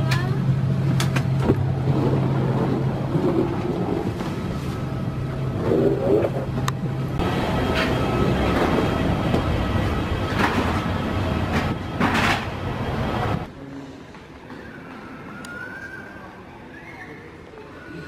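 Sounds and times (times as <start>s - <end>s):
low hum: 0.0s - 13.7s
machinery rumble and hiss: 0.0s - 14.2s.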